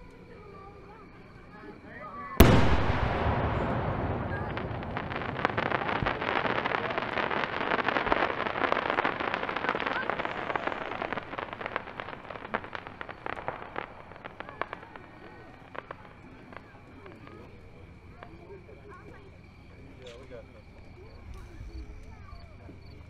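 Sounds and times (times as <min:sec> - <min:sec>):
firework bang: 0:02.4 - 0:17.3
firework crackling: 0:02.4 - 0:19.4.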